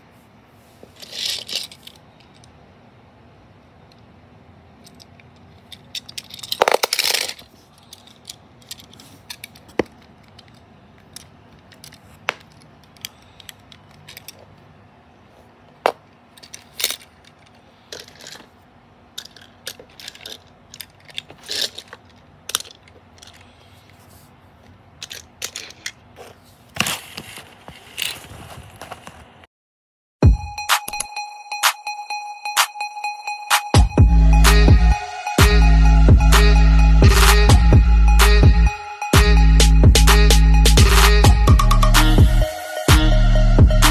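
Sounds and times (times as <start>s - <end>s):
toy car clicks and scrapes: 0.9s - 2.5s, 4.8s - 14.6s, 16.4s - 28.4s
toy cars clattering: 0.9s - 2.6s, 4.8s - 14.7s, 15.7s - 29.2s.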